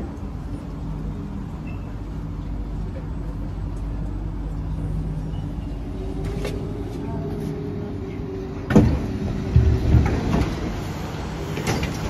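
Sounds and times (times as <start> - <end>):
train humming at platform: 0.0 - 12.0
passengers bustling: 0.1 - 12.0.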